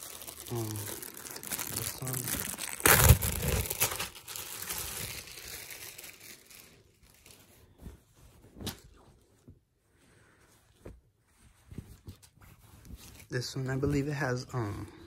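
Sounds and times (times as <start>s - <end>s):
plastic bag crinkling: 0.0s - 7.5s
fabric rustling: 2.5s - 14.6s.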